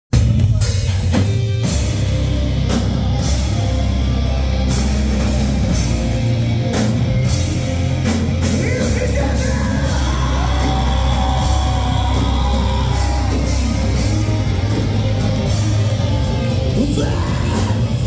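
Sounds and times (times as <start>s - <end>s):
heavy rock band playing: 0.1s - 18.0s.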